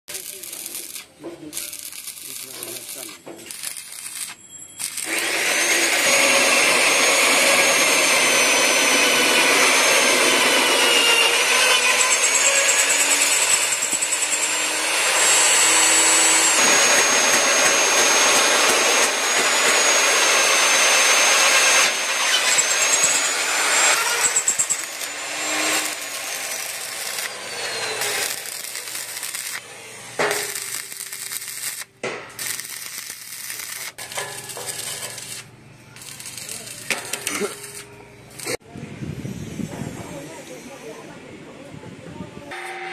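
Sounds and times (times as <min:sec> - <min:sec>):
arc welding crackling: 0:00.1 - 0:06.4, 0:15.3 - 0:38.6
drill cutting steel with whine: 0:00.1 - 0:38.6, 0:42.5 - 0:42.9.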